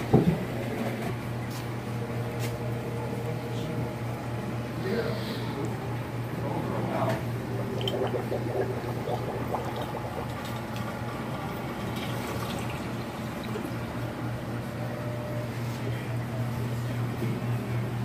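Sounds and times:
steady low hum: 0.0 - 18.0
drips and splashes: 7.6 - 13.7
water running and trickling: 7.6 - 13.7.

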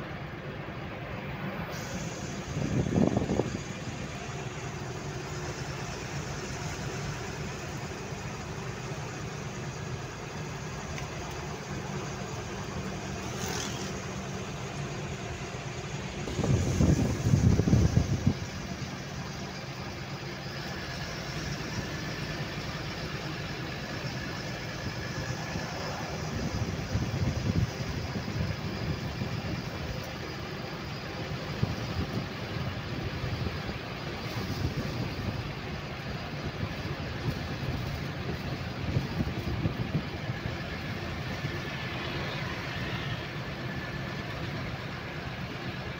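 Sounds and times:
vehicle engine and road noise: 0.0 - 45.9
wind buffeting: 1.6 - 10.8, 15.7 - 20.0, 24.3 - 41.7.

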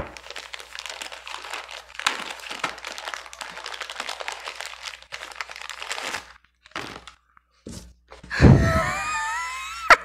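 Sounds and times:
paper wrapping crinkling and tearing: 0.0 - 8.4.

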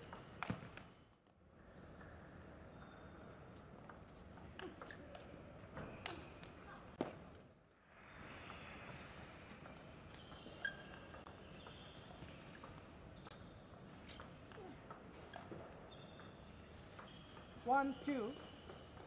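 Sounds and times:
ping pong ball hitting rackets and table: 8.5 - 19.0.

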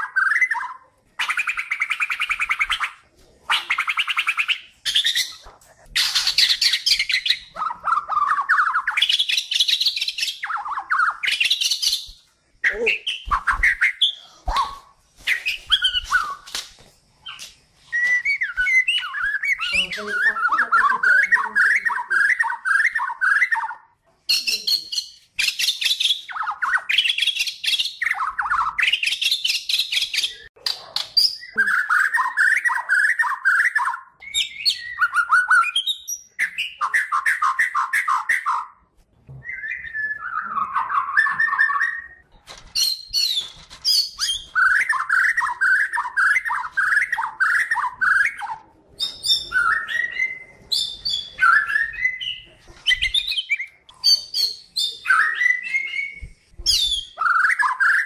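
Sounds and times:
songbird singing: 17.2 - 38.7.

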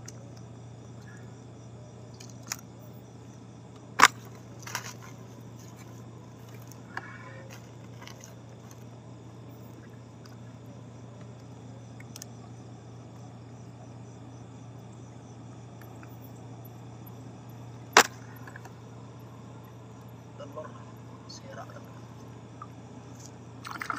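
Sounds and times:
night insects chirring: 0.0 - 23.9
steady low hum: 0.0 - 23.9.

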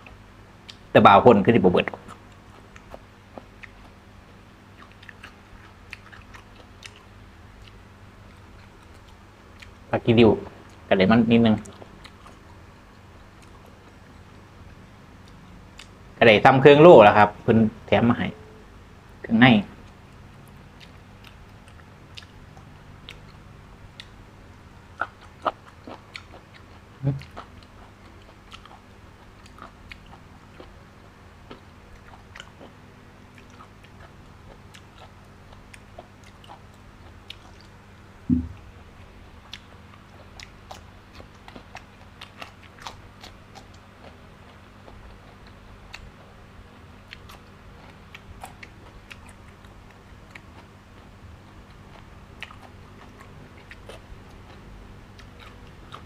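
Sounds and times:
man chewing wetly: 1.8 - 9.9, 11.6 - 14.4, 15.2 - 16.0, 19.8 - 56.0
dull low thumps: 38.3 - 38.6.

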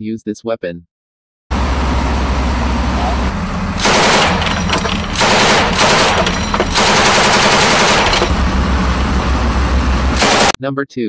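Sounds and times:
machine gun automatic fire: 3.8 - 8.4, 10.2 - 10.6.

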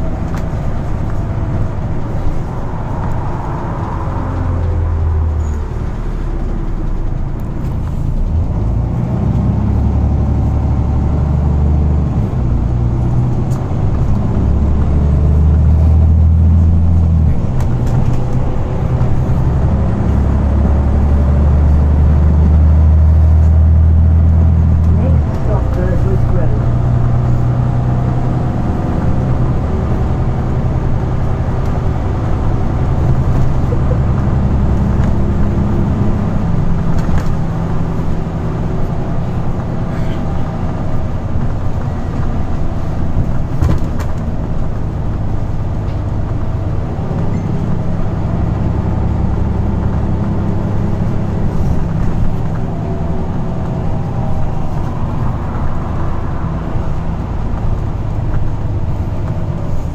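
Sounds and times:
bus diesel engine drone: 0.0 - 59.9.

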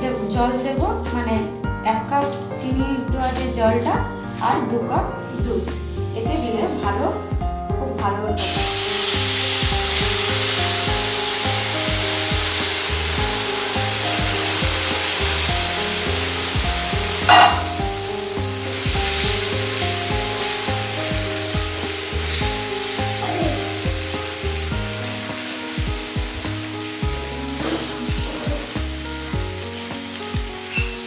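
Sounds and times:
syrup sizzling in a hot pan: 8.4 - 31.0
sharp knock: 17.3 - 17.8.

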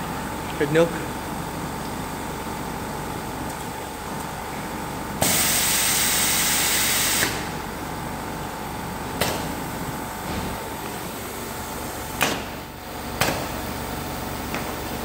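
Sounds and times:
compressed air hissing: 5.2 - 7.4.

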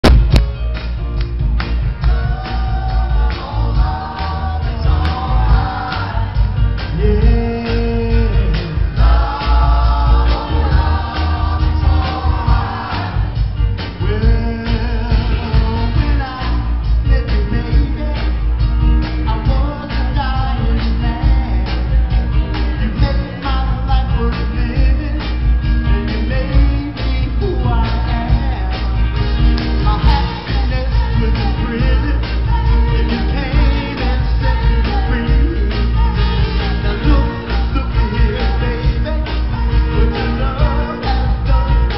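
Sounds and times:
backing band with drums and bass: 0.0 - 41.9
male vocal group singing: 2.0 - 18.4, 19.1 - 41.9.

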